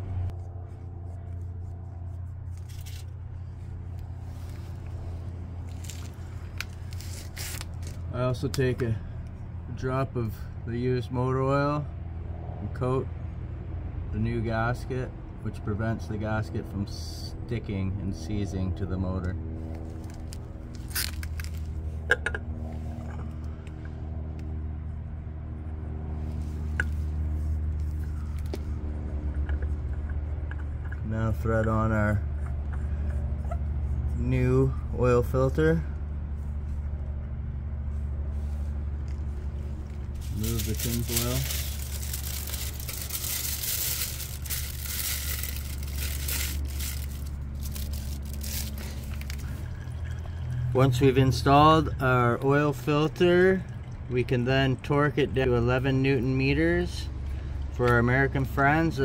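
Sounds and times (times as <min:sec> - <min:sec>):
low machine hum: 0:00.0 - 0:59.0
aluminium foil crinkling: 0:02.5 - 0:03.1, 0:05.7 - 0:08.0, 0:19.8 - 0:21.8, 0:39.8 - 0:50.0.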